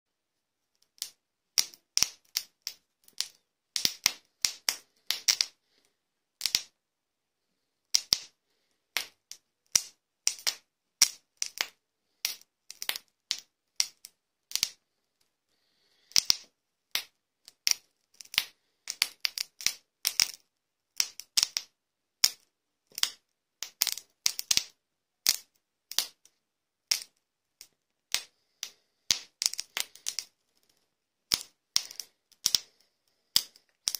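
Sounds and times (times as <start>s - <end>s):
charcoal grill crackling and popping: 0.9s - 5.5s, 9.8s - 14.8s, 16.1s - 20.4s, 21.0s - 26.2s, 26.9s - 30.7s, 31.3s - 33.9s.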